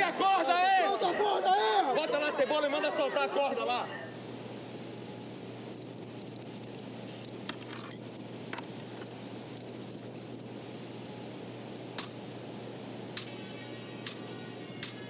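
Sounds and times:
low electrical hum: 0.0 - 15.0
keys jangling: 4.9 - 10.6.

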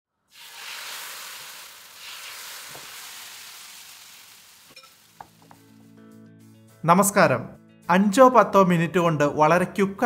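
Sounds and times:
batter sizzling on hot pan: 0.3 - 5.8.

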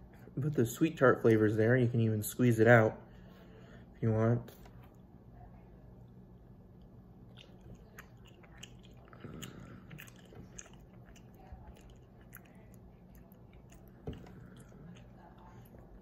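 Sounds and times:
person chewing candy: 7.3 - 16.0.

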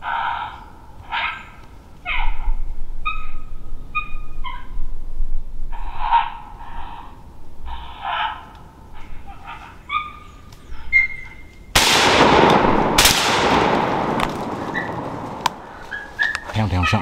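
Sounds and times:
coyote barking and howling: 0.0 - 5.0, 5.7 - 11.6, 14.6 - 17.0
rifle shots echoing: 11.8 - 16.0.

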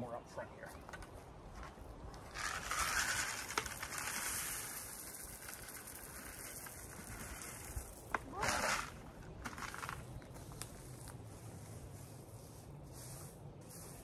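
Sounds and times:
gravel pouring from bucket: 2.3 - 9.0.

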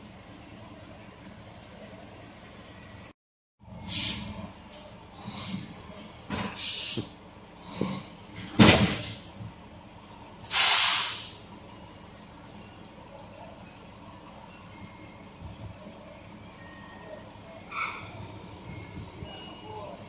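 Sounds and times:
air brakes hissing: 3.8 - 7.2, 8.2 - 9.4, 10.4 - 11.5.

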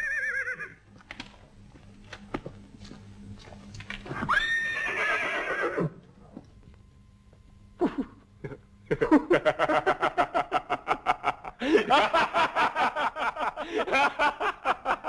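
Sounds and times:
horse whinnying: 0.0 - 0.8, 4.2 - 6.0.

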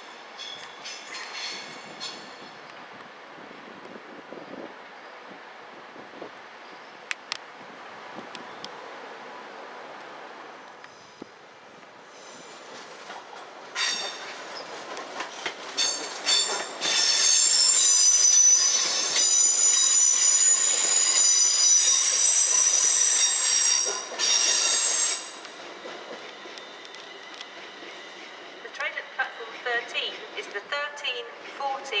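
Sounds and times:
train wheels squealing on rails: 0.0 - 2.7, 6.6 - 7.1, 10.9 - 11.4, 12.0 - 30.7.

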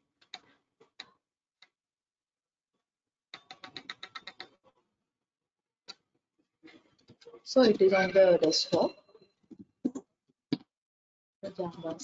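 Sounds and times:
typing on a computer keyboard: 3.4 - 4.5.

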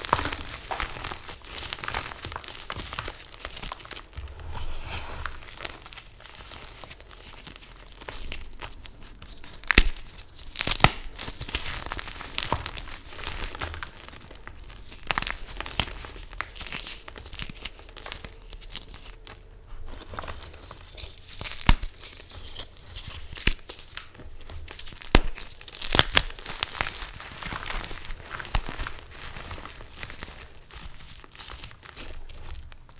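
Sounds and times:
chalk chunks snapping: 9.0 - 14.0.

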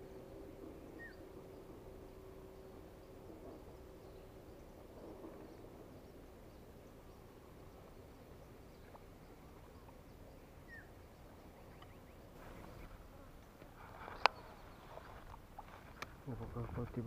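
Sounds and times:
small bird chirps: 0.0 - 12.9.

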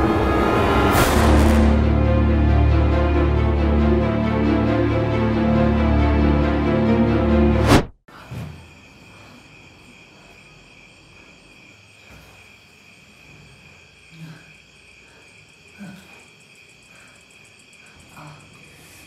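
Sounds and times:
crickets chirping: 8.1 - 19.0.

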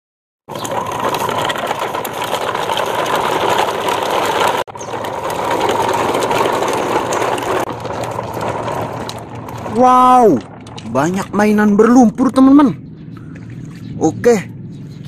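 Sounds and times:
plastic toy truck rolling on dirt: 0.5 - 12.5.

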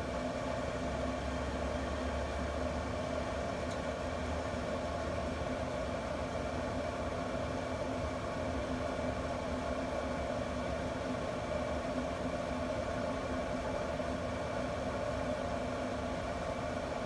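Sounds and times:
grill combustion fan humming: 0.0 - 17.0.

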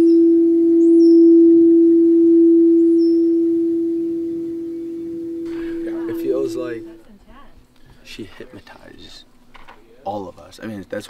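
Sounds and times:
singing bowl ringing: 0.0 - 7.0
higher singing bowl tone: 0.0 - 7.1.

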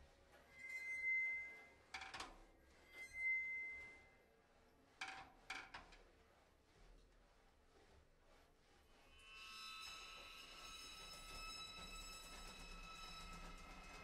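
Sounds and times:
ringing metallic tone: 9.2 - 14.0.

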